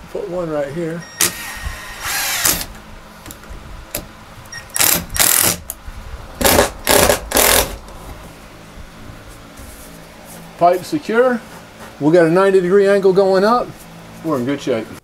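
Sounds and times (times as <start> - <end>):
cordless drill driving screws: 1.2 - 2.8, 4.7 - 5.6, 6.4 - 7.8.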